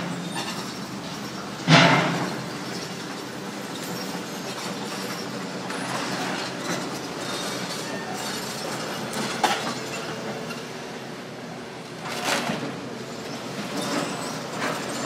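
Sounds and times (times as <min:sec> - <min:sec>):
metallic clanking and scraping: 0:00.0 - 0:03.2
excavator engine: 0:00.0 - 0:15.0.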